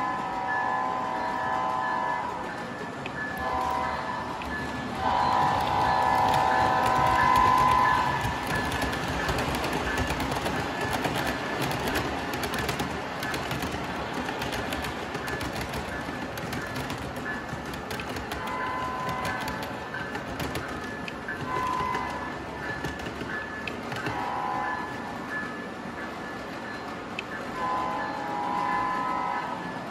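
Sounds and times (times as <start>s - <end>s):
train horn blasts: 0.0s - 2.4s, 3.4s - 4.4s, 5.0s - 8.4s, 18.4s - 19.6s, 21.5s - 22.3s, 24.1s - 25.0s, 27.6s - 29.8s
model train wheels rumbling: 0.0s - 29.3s
rapid clicking over rail joints: 2.4s - 27.6s.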